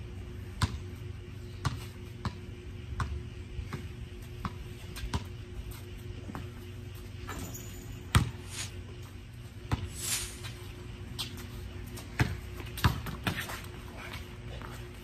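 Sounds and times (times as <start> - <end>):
basketball bouncing on concrete: 0.4 - 8.4, 9.5 - 10.0, 11.2 - 13.8.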